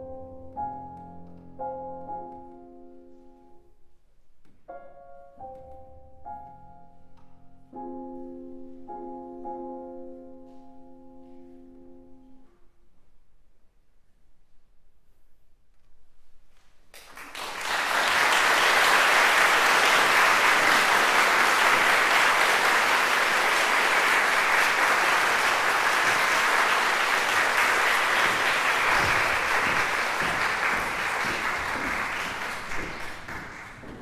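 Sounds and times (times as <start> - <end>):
audience applauding: 17.0 - 34.0.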